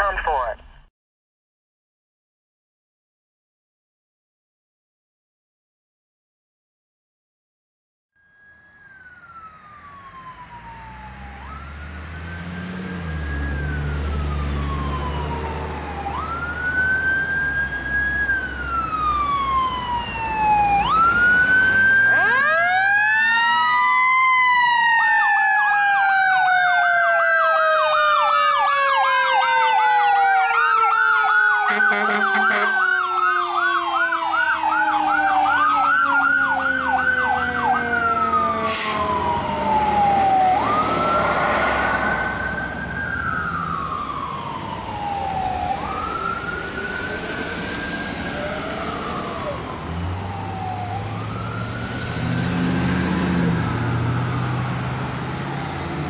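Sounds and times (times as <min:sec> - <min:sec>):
electronic siren wailing and yelping: 0:14.6 - 0:52.0
vehicle rumble: 0:35.4 - 0:56.0.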